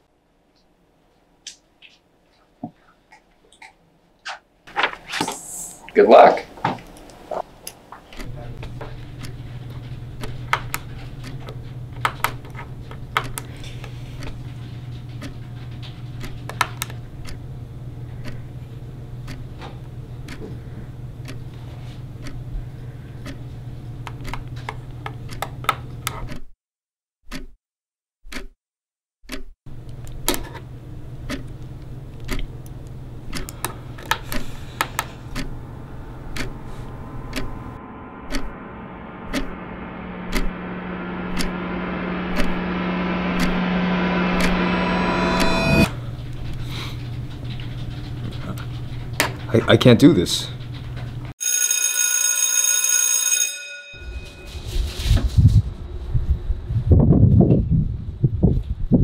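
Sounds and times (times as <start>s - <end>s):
steady low hum: 4.7s - 25.3s, 29.7s - 49.2s
wall clock ticking: 34.3s - 35.6s
rising noise: 34.3s - 46.0s, 53.9s - 56.4s.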